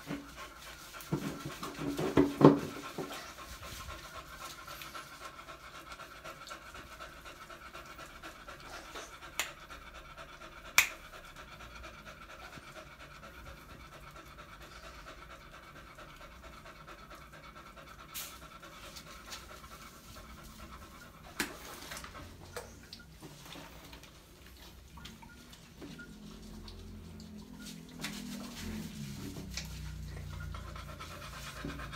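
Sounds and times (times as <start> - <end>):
dog panting: 0.0 - 31.9.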